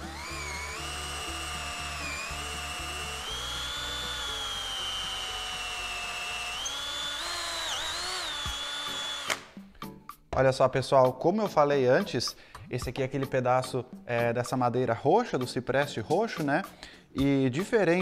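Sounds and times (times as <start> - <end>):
drill motor whining: 0.0 - 9.6.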